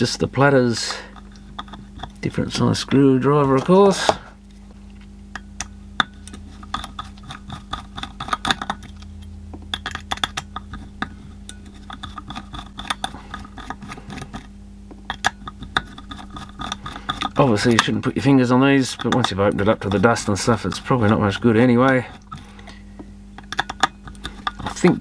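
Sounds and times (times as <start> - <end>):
steady low hum: 0.0 - 25.0
screwdriver clicking and scraping: 1.2 - 2.3, 6.2 - 18.1, 18.8 - 22.8, 23.4 - 25.0.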